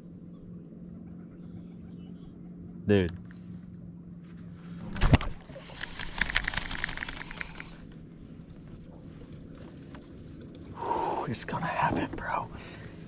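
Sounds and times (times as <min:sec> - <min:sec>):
fishing reel ticking: 0:05.6 - 0:07.9.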